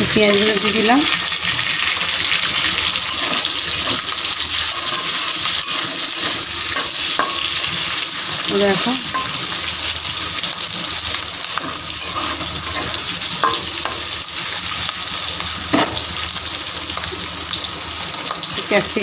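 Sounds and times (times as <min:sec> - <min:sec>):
onions sizzling in hot oil: 0:00.0 - 0:19.0
spatula scraping metal pan: 0:03.0 - 0:09.7, 0:11.4 - 0:14.3.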